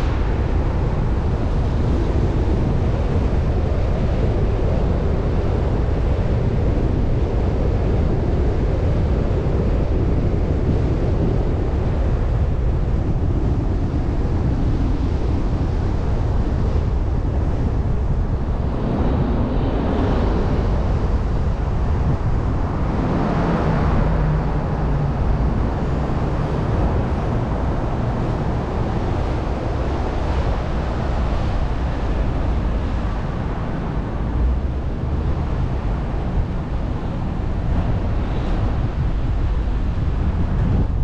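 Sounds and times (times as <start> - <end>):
wind on microphone: 0.0 - 41.0.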